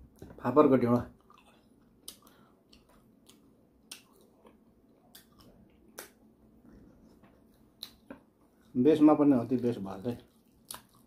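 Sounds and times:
wet mouth smacks while eating: 2.0s - 4.3s, 10.6s - 11.0s.

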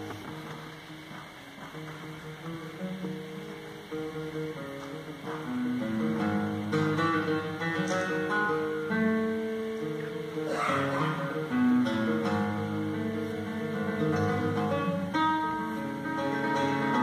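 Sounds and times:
classical guitar: 0.0s - 17.0s.

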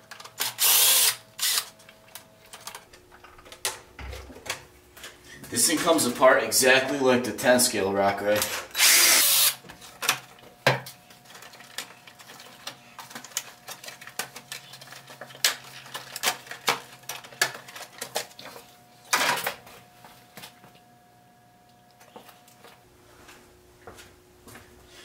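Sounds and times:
cordless impact driver running: 0.4s - 1.7s, 8.7s - 9.6s.

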